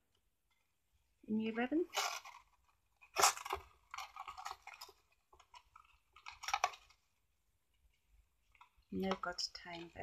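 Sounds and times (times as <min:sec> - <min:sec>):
ribbon and cardboard box rustling: 0:01.7 - 0:07.0.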